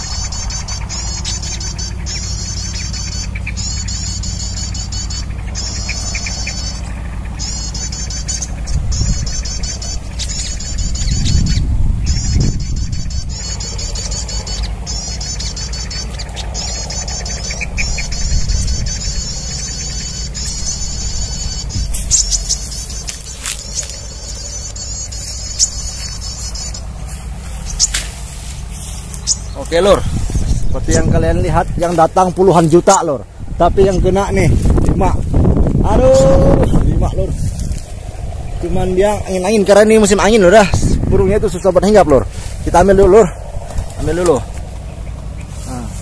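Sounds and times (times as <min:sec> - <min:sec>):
sharp ticks: 0:00.0 - 0:33.0
rapid high bird chirps: 0:00.0 - 0:46.0
wind rumble on microphone: 0:00.0 - 0:46.0.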